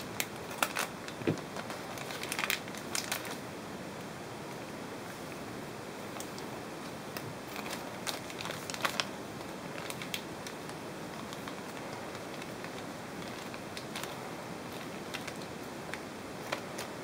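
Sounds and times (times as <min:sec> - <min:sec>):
plastic bag crinkling: 0:00.0 - 0:03.4, 0:07.1 - 0:17.0
steady hiss: 0:00.0 - 0:17.0.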